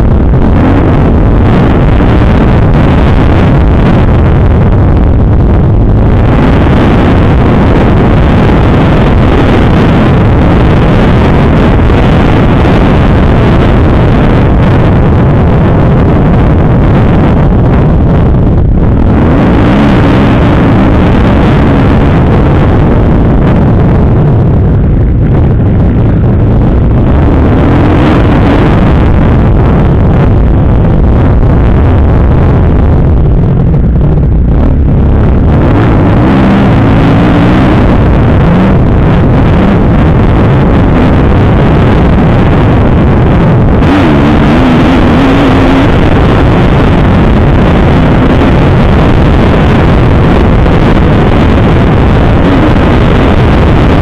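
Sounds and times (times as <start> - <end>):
motocross engine revving: 35.2 - 46.8.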